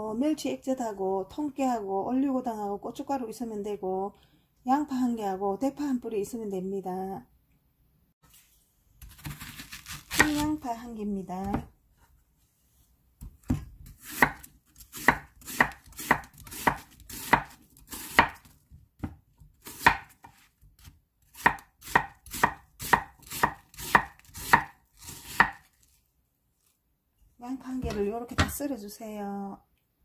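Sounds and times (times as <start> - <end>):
knife chopping on wooden board: 13.2 - 25.7.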